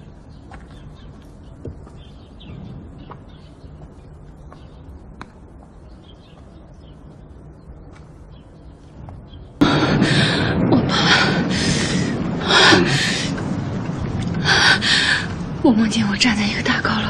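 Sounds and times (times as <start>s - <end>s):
soft bird chirps: 0.0s - 9.6s.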